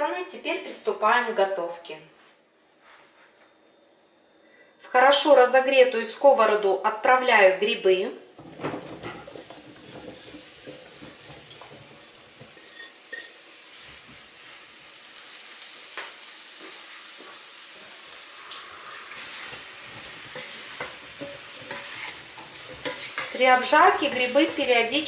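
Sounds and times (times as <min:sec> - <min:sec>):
mushrooms sizzling in frying pan: 0:08.4 - 0:25.0
spatula scraping pan: 0:08.5 - 0:14.6, 0:19.0 - 0:25.0.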